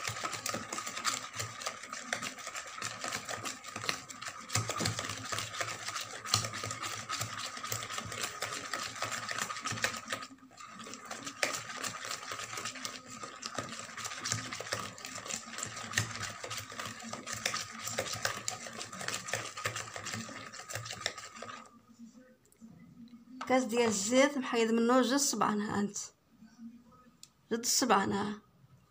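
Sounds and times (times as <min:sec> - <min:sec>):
whisk beating in plastic bowl: 0:00.0 - 0:21.8, 0:23.4 - 0:24.2.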